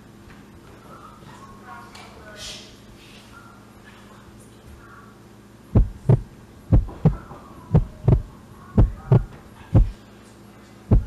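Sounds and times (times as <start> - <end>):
loud knocking: 5.8 - 7.2.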